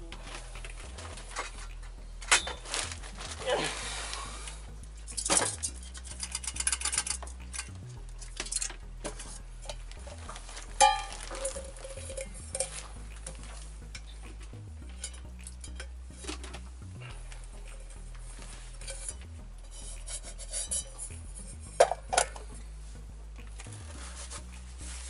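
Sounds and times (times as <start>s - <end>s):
metal parts clicking and scraping: 5.0s - 14.1s, 14.8s - 16.7s, 17.6s - 22.5s.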